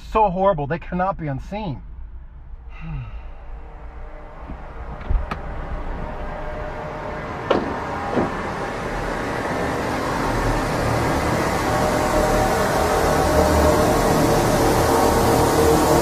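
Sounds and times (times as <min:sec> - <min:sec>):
car doors shutting: 0:04.4 - 0:05.6, 0:07.4 - 0:08.6.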